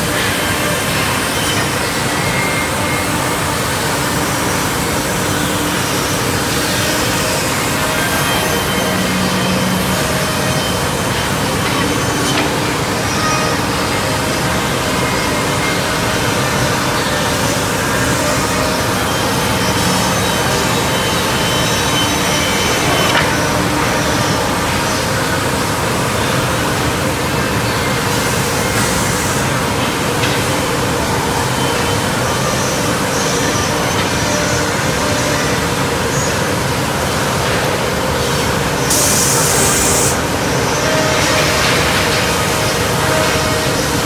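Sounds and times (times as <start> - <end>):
woodworking machines running: 0.0 - 44.0.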